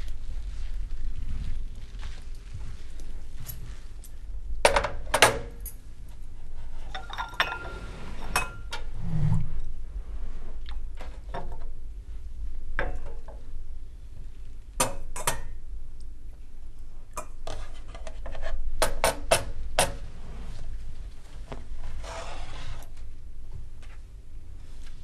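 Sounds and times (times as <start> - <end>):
crockery and cutlery clinking: 6.9 - 8.8.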